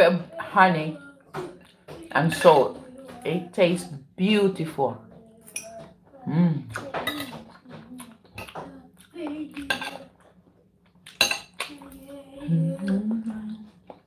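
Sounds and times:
cutlery clinking on a plate: 2.2 - 2.7, 5.5 - 5.9, 9.6 - 10.1, 11.1 - 11.7
person humming: 5.0 - 10.2, 11.6 - 13.8.

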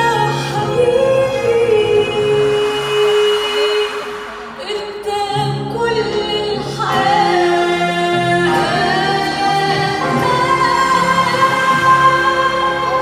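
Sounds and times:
piano: 0.0 - 13.0
string orchestra: 0.0 - 13.0
woman singing: 0.0 - 13.0.

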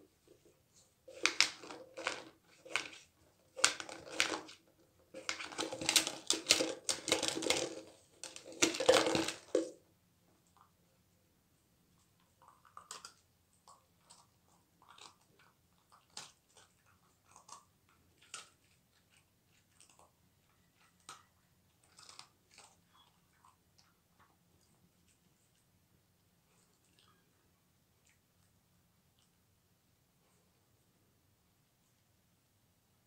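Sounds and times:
dog crunching dry treats: 1.1 - 9.8, 12.4 - 23.9
plastic tub rattling with treats: 1.1 - 9.8.

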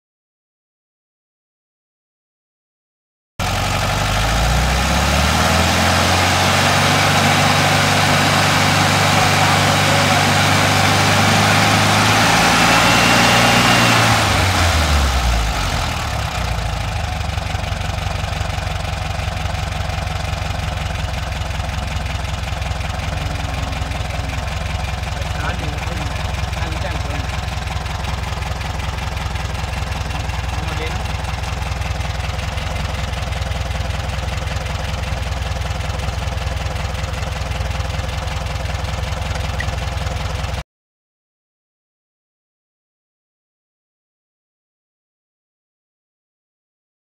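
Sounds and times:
car engine running: 3.4 - 40.6.

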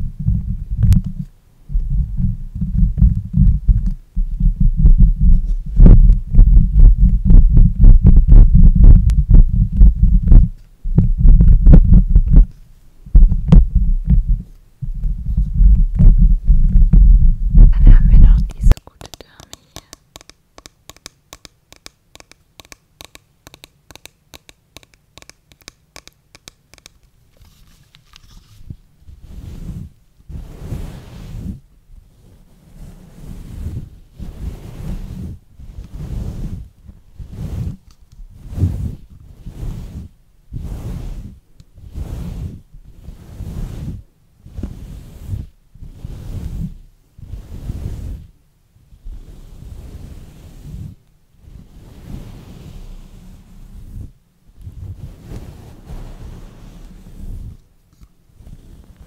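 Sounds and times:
hair brushing over microphone: 15.1 - 31.6, 32.2 - 36.6, 37.2 - 48.3, 49.0 - 59.0
tapping on plastic doll: 18.8 - 27.1.

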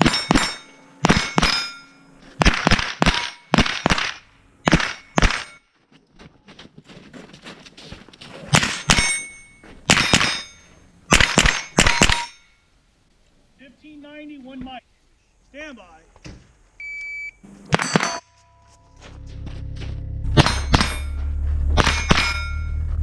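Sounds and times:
rifle shots: 0.0 - 1.8, 2.4 - 5.6, 9.9 - 10.5, 11.1 - 12.4, 17.7 - 18.2, 21.8 - 22.6
steel plate ringing: 0.0 - 2.4, 3.0 - 4.0, 8.6 - 12.7, 17.7 - 19.0, 20.3 - 23.0.

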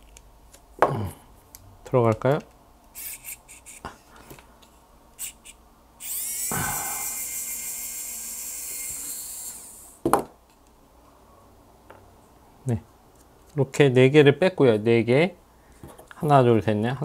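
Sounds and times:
electric screwdriver running: 3.0 - 3.8, 5.2 - 10.0.

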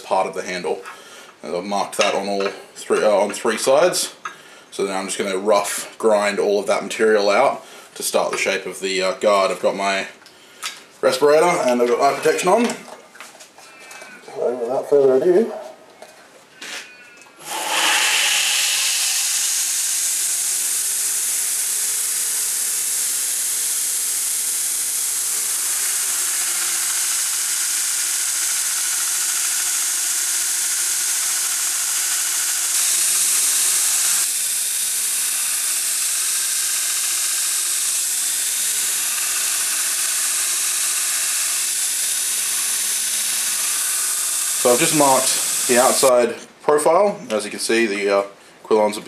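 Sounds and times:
belt grinder grinding steel: 17.3 - 46.2.

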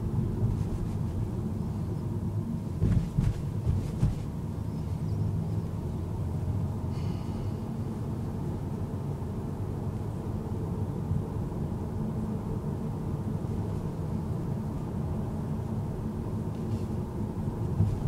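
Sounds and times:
car road and engine rumble: 0.0 - 18.0
short knocks: 2.8 - 4.3.

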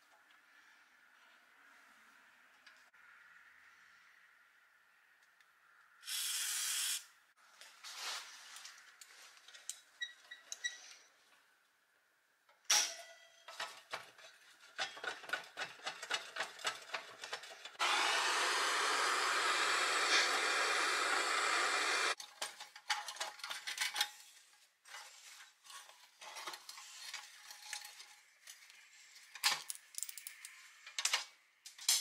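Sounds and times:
aerosol spray: 6.1 - 7.1
cordless drill running: 17.8 - 22.2
metal clicks and handling: 26.2 - 32.0.

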